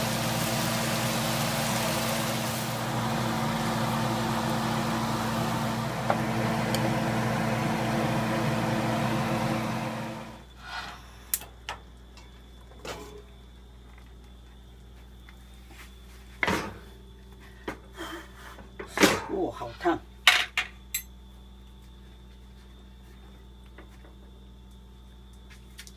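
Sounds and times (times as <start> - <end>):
water sizzling in a wok: 0.0 - 6.1.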